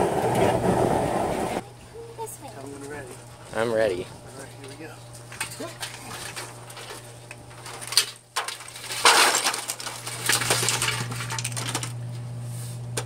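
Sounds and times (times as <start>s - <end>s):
food and shells pouring: 8.5s - 11.9s.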